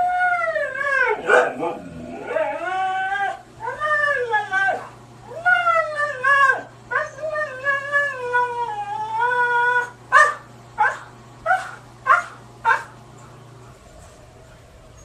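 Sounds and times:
dog howling: 0.0s - 12.8s
steady low hum: 0.0s - 15.0s
dog yelping: 1.1s - 2.6s, 9.8s - 12.9s.

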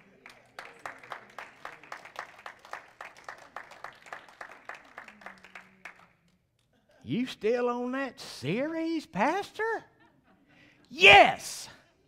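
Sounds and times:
congregation clapping: 0.0s - 6.1s, 11.0s - 11.5s.

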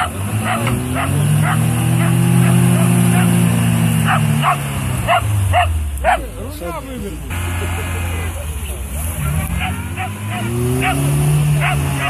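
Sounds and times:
small dog barking: 0.0s - 3.4s, 4.0s - 6.3s, 9.2s - 12.0s
car engine revving: 0.0s - 12.0s.

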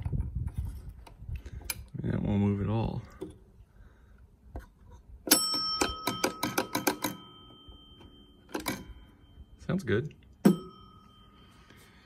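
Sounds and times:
pinball machine bell ringing: 5.3s - 12.0s.

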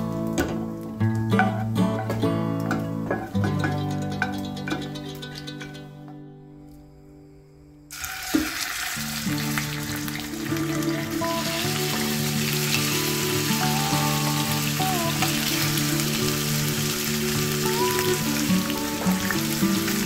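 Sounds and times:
meat sizzling in hot oil: 7.9s - 20.0s.

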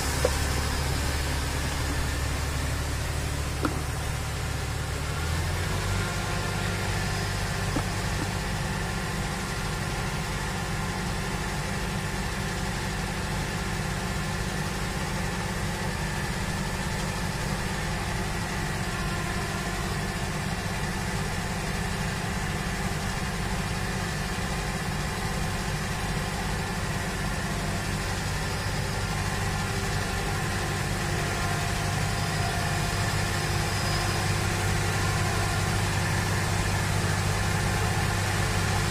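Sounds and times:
combine harvester drone: 0.0s - 38.9s
machinery knock: 3.5s - 4.2s.

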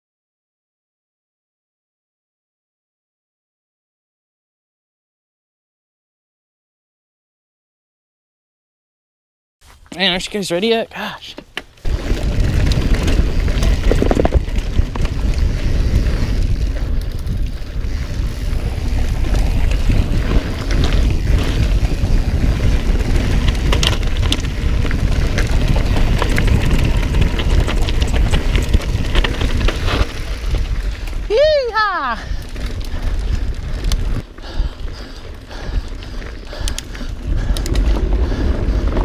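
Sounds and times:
bike rattles and clicks: 9.6s - 39.0s
tyre rumble: 11.8s - 39.0s
wind buffeting microphone: 11.8s - 39.0s.

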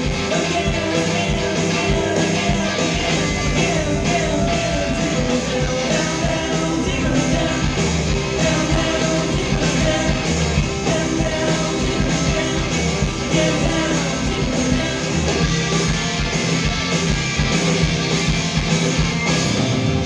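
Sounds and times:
person singing: 0.0s - 15.5s
rock band playing live: 0.0s - 20.0s.

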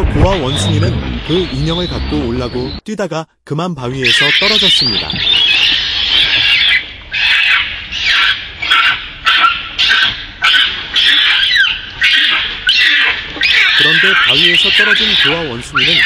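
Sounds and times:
monkey screaming: 4.0s - 16.0s.

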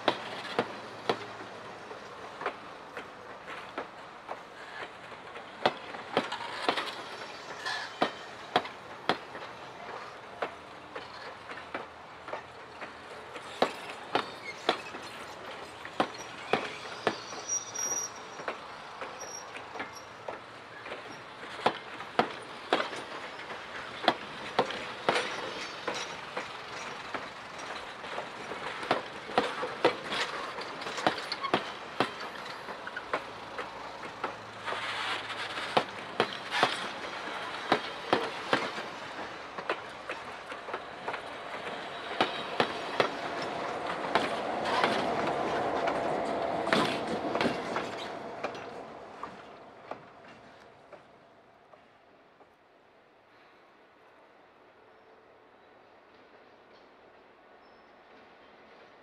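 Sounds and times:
train rolling rumble: 0.0s - 52.6s
train wheels clicking over rail joints: 0.0s - 52.6s
wheel squeal: 6.3s - 8.4s, 13.7s - 15.3s, 16.0s - 18.5s, 19.1s - 21.3s, 34.6s - 37.0s.

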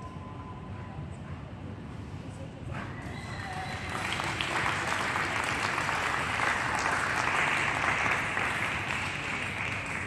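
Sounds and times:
audience applauding: 3.1s - 10.0s.

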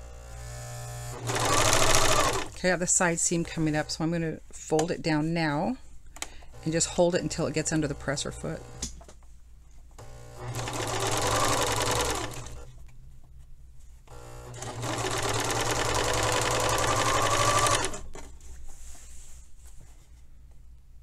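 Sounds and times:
serger stitching: 0.2s - 4.3s, 10.0s - 12.8s, 14.1s - 18.3s.

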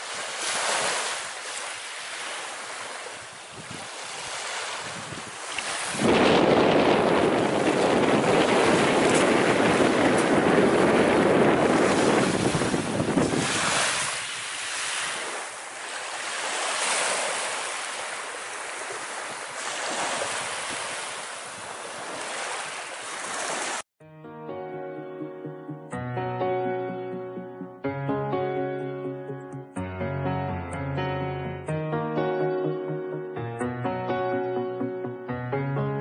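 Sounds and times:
sea waves washing in: 0.0s - 23.8s
wind buffeting microphone: 3.2s - 4.1s, 4.7s - 14.6s.

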